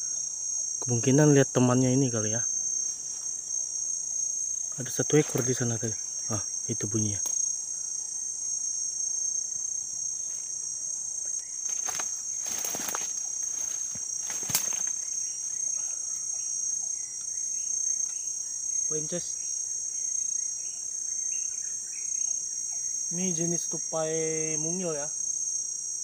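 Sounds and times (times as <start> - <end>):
high-pitched insect chorus: 0.0 - 26.0
sharp rustles: 11.6 - 15.2.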